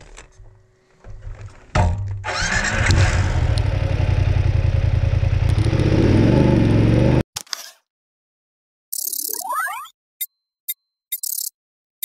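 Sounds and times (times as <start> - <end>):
motorcycle engine running: 2.3 - 7.2.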